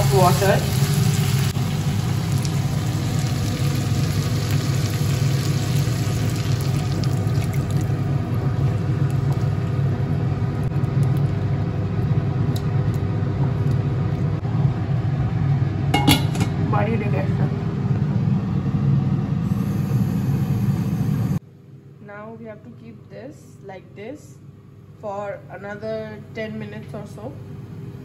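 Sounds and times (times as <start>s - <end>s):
curry sizzling in a pan: 0.0s - 10.1s
steady low hum: 0.0s - 28.0s.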